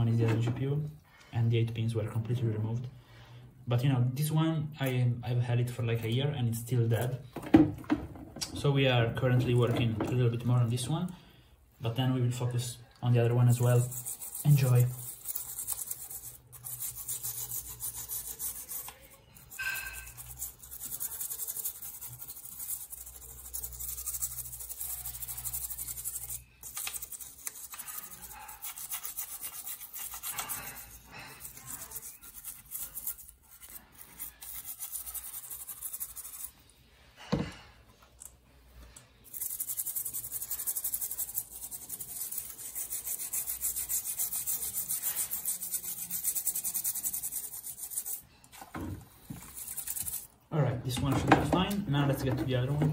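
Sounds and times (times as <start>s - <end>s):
toothbrush scrubbing circuit board: 13.1s - 36.6s, 39.1s - 48.2s, 49.2s - 50.4s.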